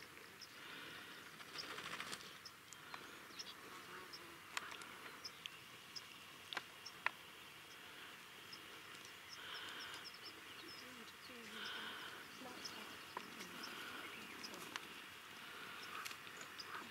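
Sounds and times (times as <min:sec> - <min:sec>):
buzz: 0:03.6 - 0:05.0.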